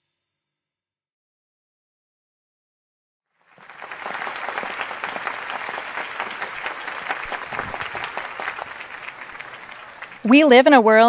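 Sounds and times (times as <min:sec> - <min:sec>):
audience applause: 0:03.4 - 0:11.0.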